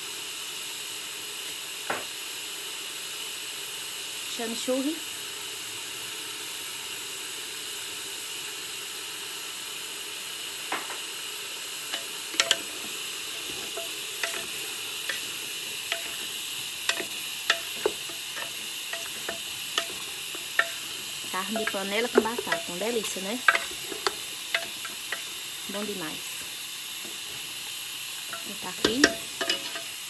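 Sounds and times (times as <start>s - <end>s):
steady hiss: 0.0s - 30.0s
wooden spoon knocking pot: 11.9s - 26.0s, 28.3s - 29.9s.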